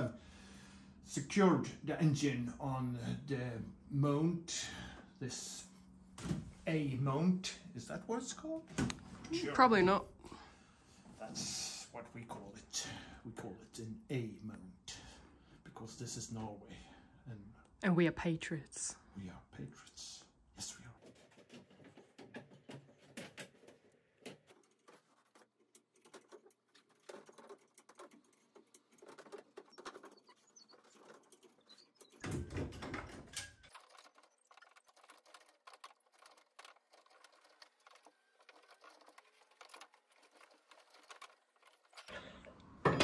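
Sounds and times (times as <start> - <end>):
chain hoist clicking and rattling: 24.6 - 42.1.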